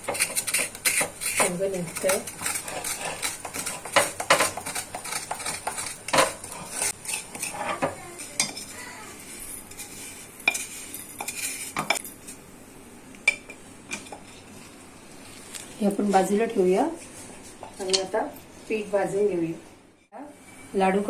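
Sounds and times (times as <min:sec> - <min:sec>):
spatula scraping sugar: 0:00.0 - 0:12.4.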